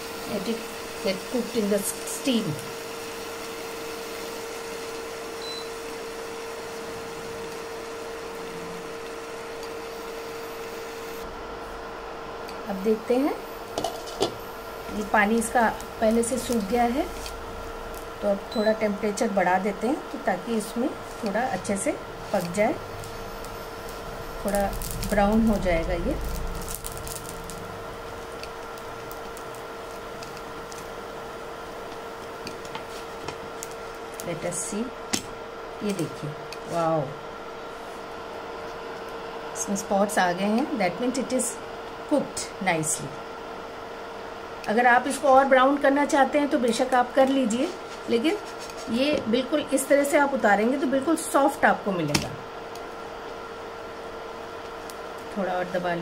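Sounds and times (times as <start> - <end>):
bread hissing on hot griddle: 0.0 - 8.4, 9.0 - 11.2, 20.8 - 34.6
mechanical hum with hiss: 0.0 - 56.0
faint crackles: 20.6 - 34.6.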